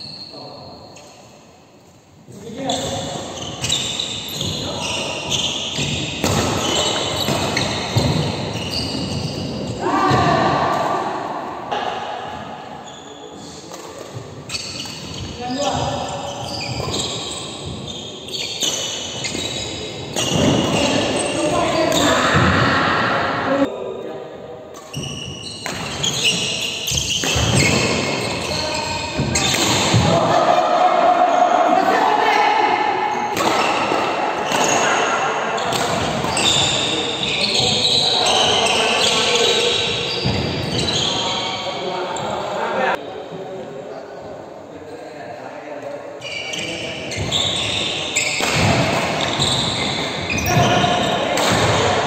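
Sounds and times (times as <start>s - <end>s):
sneakers squeaking on court floor: 0.0s - 1.4s, 2.6s - 10.8s, 11.8s - 22.7s, 24.8s - 30.2s, 33.1s - 42.9s, 46.2s - 52.0s
racket hitting shuttlecock: 5.8s - 9.4s, 24.8s - 28.1s, 29.2s - 30.2s, 33.3s - 34.8s, 35.6s - 36.4s, 48.4s - 50.6s, 51.3s - 52.0s.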